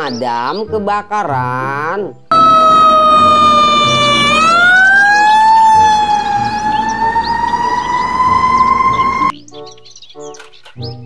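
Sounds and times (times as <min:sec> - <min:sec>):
fire truck siren wailing: 0:02.3 - 0:09.3.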